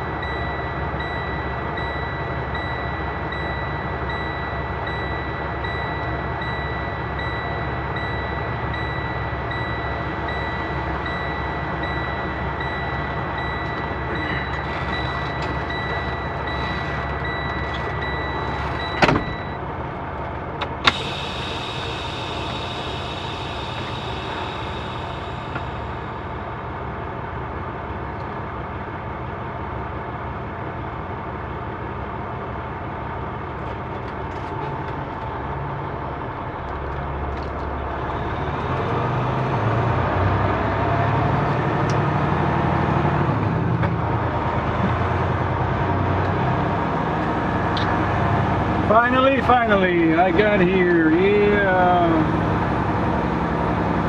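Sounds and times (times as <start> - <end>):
steady high tone: 0.0 - 19.6, 20.9 - 26.8
diesel engine idling: 0.0 - 54.0.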